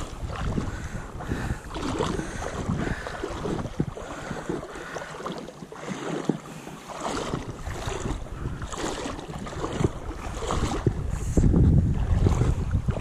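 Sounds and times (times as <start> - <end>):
wind on microphone: 0.0 - 5.4, 6.2 - 13.0
river water sloshing and lapping: 0.0 - 13.0.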